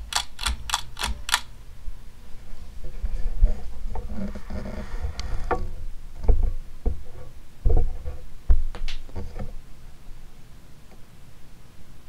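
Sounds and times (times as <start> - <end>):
sharp clicks: 0.0 - 1.5.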